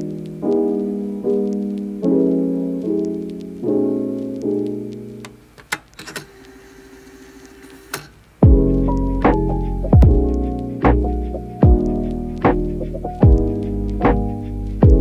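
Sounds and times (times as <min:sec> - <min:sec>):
soft piano chords: 0:00.0 - 0:05.6, 0:08.4 - 0:15.0
beat with deep bass: 0:08.4 - 0:15.0.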